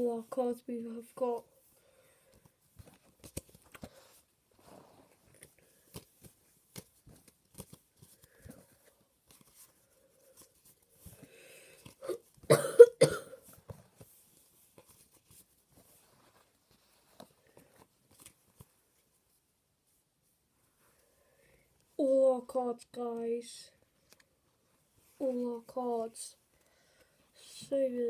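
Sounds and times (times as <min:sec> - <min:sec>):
trading cards clicking and rustling: 0:02.8 - 0:04.0, 0:05.2 - 0:09.7, 0:17.6 - 0:18.7
person coughing: 0:12.0 - 0:13.5.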